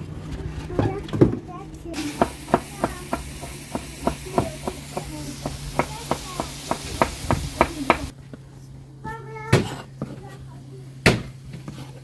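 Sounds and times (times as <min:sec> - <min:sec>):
knife chopping on wooden board: 0:02.0 - 0:08.1.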